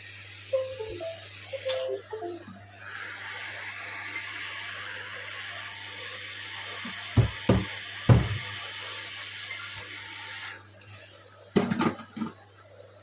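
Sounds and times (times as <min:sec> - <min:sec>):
hot air blower hissing: 0:00.0 - 0:01.6, 0:02.8 - 0:11.4
dull knocks: 0:07.2 - 0:08.5.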